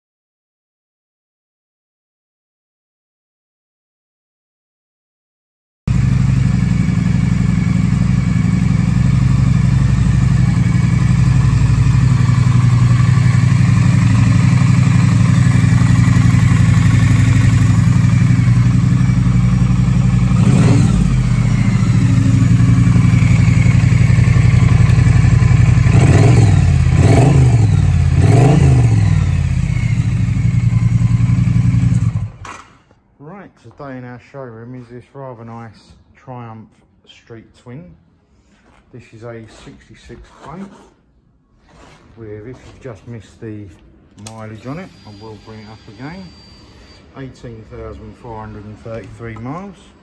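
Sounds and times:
motorcycle engine idling: 5.9 - 32.4
engine throttle blips: 5.9 - 32.5.

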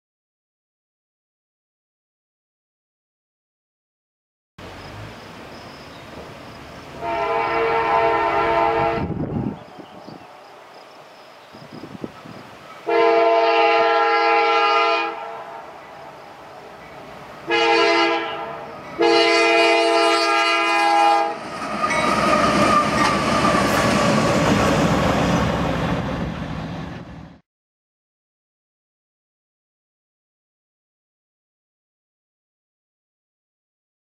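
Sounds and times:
train wheels on rails: 4.6 - 12.9, 18.3 - 27.4
diesel locomotive engines rumbling: 4.6 - 27.4
locomotive air horn blasts: 7.0 - 9.6, 12.8 - 15.8, 17.4 - 23.2.

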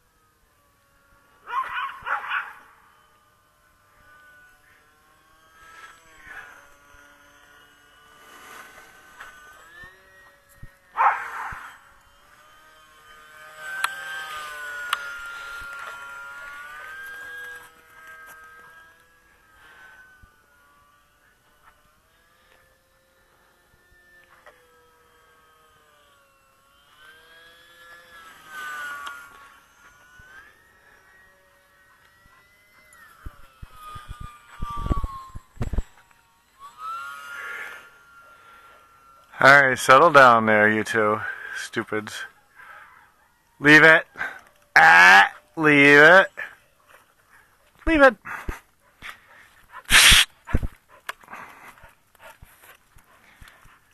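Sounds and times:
model plane motor whining: 0.0 - 53.9
brief loud burst of noise: 49.9 - 50.7.

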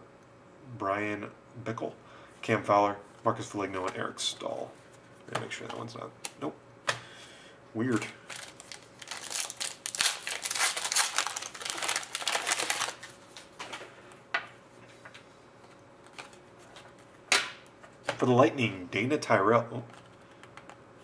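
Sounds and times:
cards rustling: 7.9 - 13.9
foil wrapper crinkling: 8.0 - 13.5.

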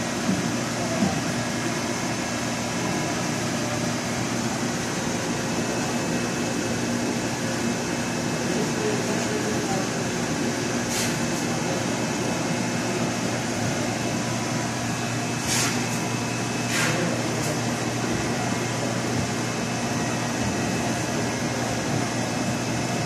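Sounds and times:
mechanical hum and hiss: 0.0 - 23.0
short hissing sounds: 10.8 - 11.3, 15.4 - 16.0.

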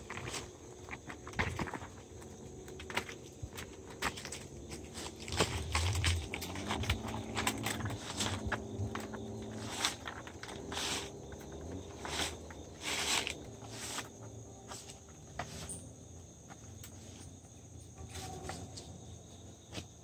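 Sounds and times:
barbed wire rustling and scraping: 0.0 - 20.0.

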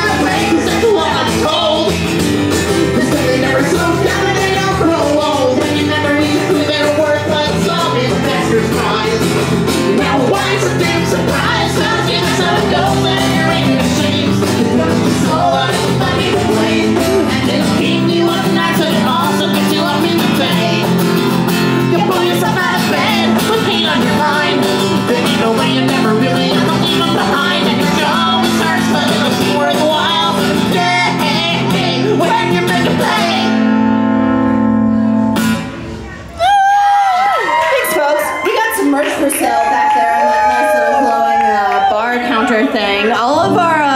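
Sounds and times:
person singing: 0.0 - 33.7
banjo strumming: 0.0 - 36.0
acoustic guitar strumming: 0.0 - 36.3.

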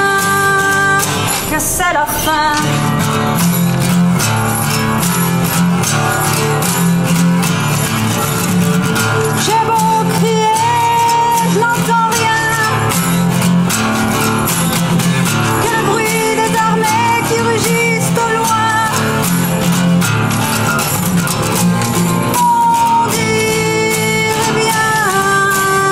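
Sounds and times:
woman singing: 0.0 - 3.1, 9.2 - 13.5, 15.4 - 19.4, 22.3 - 25.9
acoustic guitar strumming: 0.0 - 25.9.

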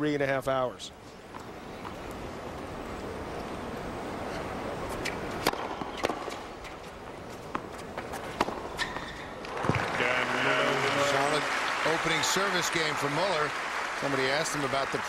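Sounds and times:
stadium crowd hum: 0.0 - 15.0
tennis ball hit by rackets: 5.0 - 6.8, 7.4 - 9.9.

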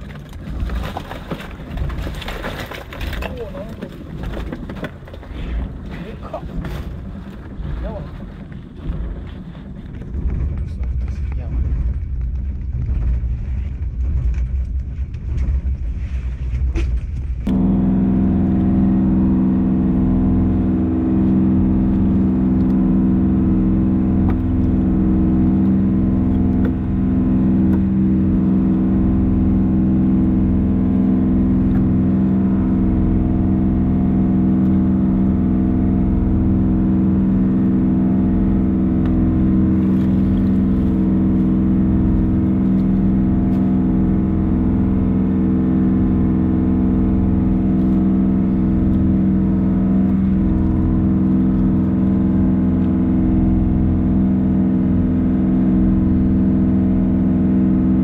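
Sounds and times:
low machinery rumble with clatters: 0.0 - 58.0
motor humming: 17.4 - 58.0.

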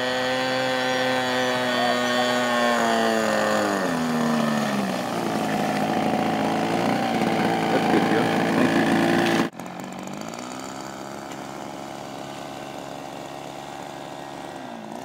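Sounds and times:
model plane engine and propeller: 0.0 - 15.0.

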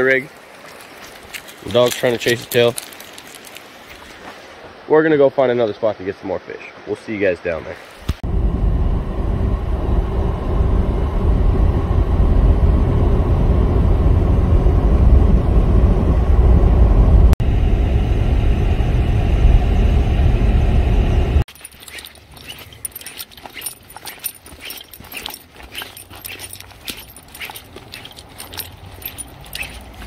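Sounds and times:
scattered crackles and clicks: 1.0 - 4.2.

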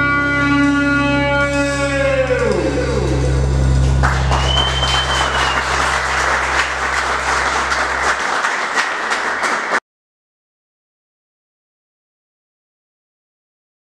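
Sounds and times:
audience applauding: 3.8 - 9.8
short high whistle: 4.3 - 5.9.

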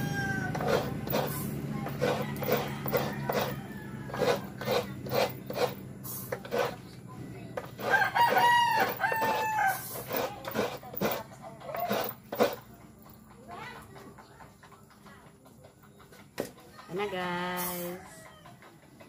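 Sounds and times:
rooster crowing: 0.0 - 0.9, 2.0 - 4.6, 7.8 - 10.0
coconut grater scraping: 0.0 - 12.8.

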